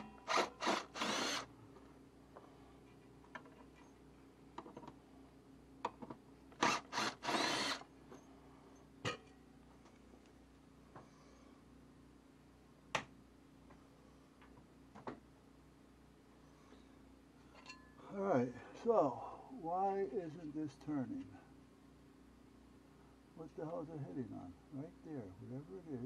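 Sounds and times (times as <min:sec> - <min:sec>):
cordless drill whirring: 0:00.0 - 0:01.5, 0:06.6 - 0:07.9.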